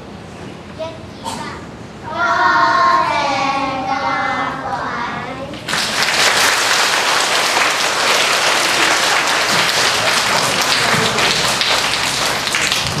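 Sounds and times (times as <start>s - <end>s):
audience applauding: 5.7s - 13.0s.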